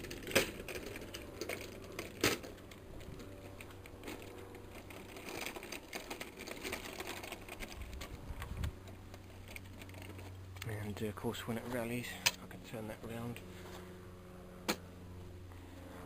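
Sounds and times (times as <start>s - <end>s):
trolley wheels rolling and rattling: 0.0s - 12.0s.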